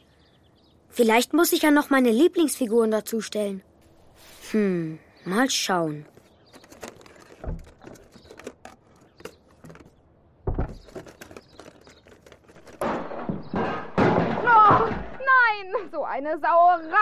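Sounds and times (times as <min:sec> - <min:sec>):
small clicks and rustling: 0:05.9 - 0:10.0, 0:10.7 - 0:12.8
groceries hitting the floor: 0:06.0 - 0:15.0
glass jars and bottles smashing: 0:10.8 - 0:15.2.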